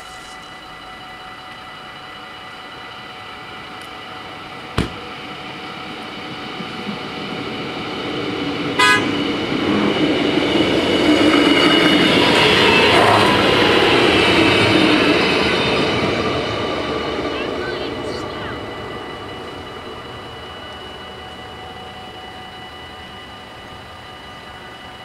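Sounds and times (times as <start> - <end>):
diesel railcar engine and rolling: 0.0 - 25.0
sharp knock: 4.8 - 5.0
short horn toot: 8.8 - 9.2
level crossing bells ringing: 17.2 - 25.0.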